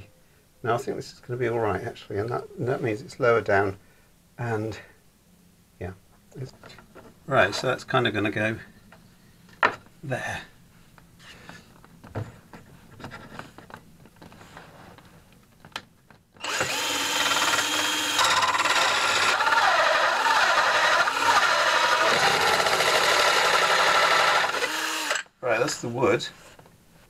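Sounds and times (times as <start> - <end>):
cordless drill cutting wood: 16.4 - 25.3.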